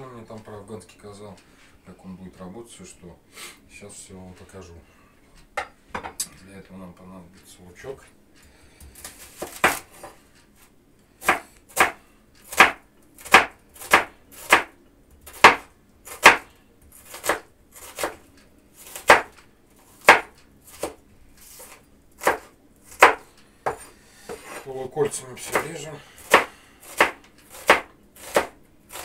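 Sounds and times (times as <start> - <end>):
knife chopping on wooden board: 9.0 - 10.2, 11.2 - 18.2, 18.8 - 29.0.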